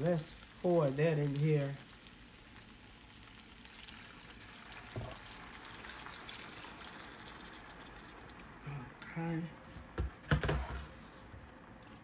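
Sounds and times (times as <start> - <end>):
liquid pouring into skillet: 0.0 - 8.6
knock: 10.0 - 10.8.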